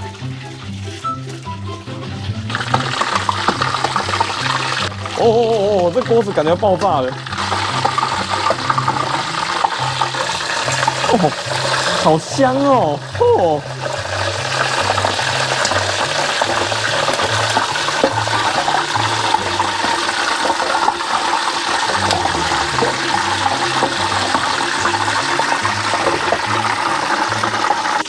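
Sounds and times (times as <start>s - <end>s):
oil sizzling and crackling: 0.0s - 28.0s.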